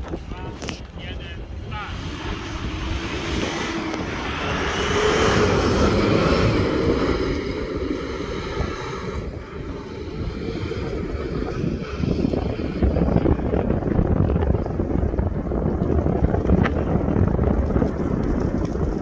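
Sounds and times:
off-road vehicle engine driving past: 0:01.7 - 0:13.3.

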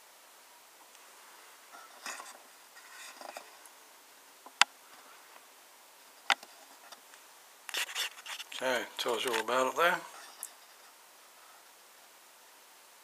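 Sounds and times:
metal tin rubbing in hands: 0:07.7 - 0:09.5.

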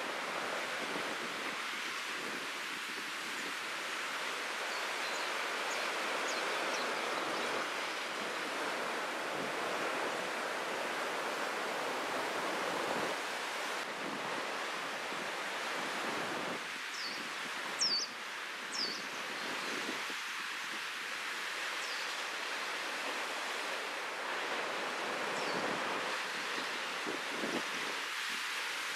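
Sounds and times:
wind on microphone: 0:24.7 - 0:28.5.

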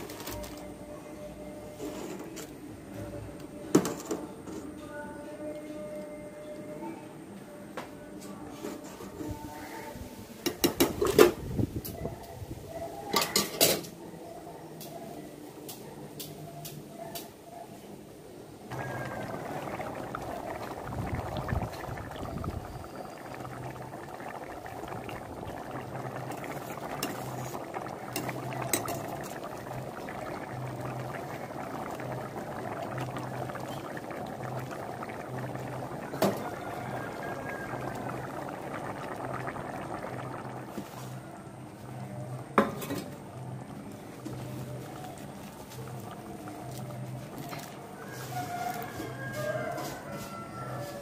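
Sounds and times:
water bubbling at a rolling boil: 0:18.5 - 0:51.0.

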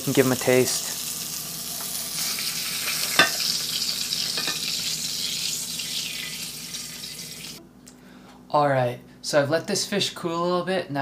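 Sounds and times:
fish sizzling in frying pan: 0:00.0 - 0:07.6.

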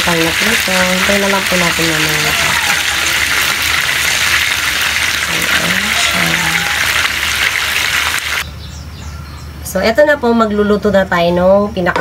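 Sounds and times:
fish sizzling in hot oil: 0:00.0 - 0:08.4.

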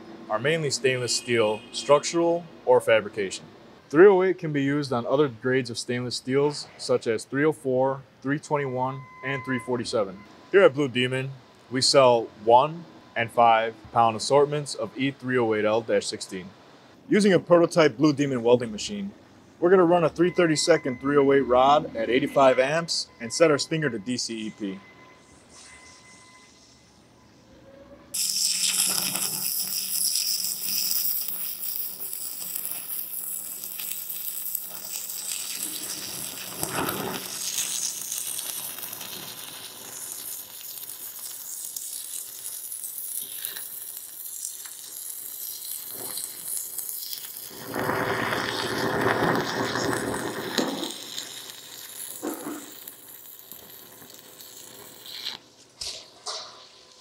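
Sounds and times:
welding arc frying hiss: 0:28.2 - 0:57.0.

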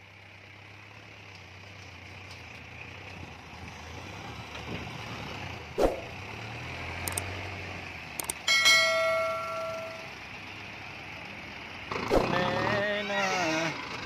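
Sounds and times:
tractor diesel engine under load: 0:00.0 - 0:14.0.

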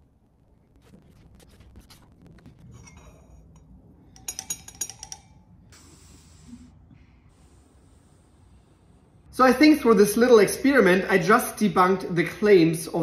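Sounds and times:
metal rods clinking against glass: 0:02.8 - 0:05.5.

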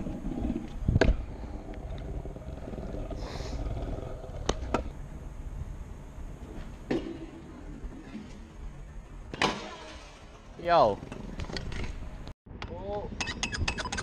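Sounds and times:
scooter wheels rolling on tiles: 0:00.0 - 0:05.1.

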